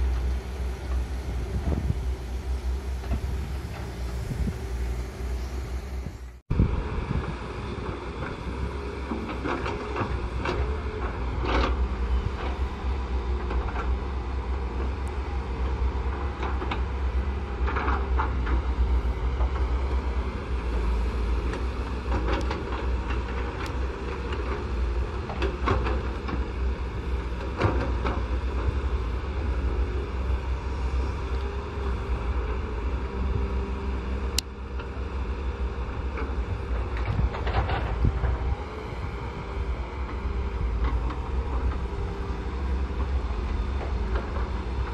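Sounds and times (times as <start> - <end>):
excavator diesel engines running: 0.0 - 44.9
excavator bucket clanks and scrapes: 8.2 - 12.6, 36.2 - 38.6.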